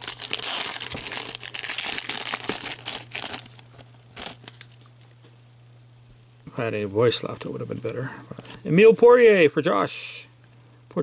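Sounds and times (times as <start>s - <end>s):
foil wrapper rustle: 0.0s - 4.8s
foil wrapper tearing and crinkling: 0.0s - 4.8s.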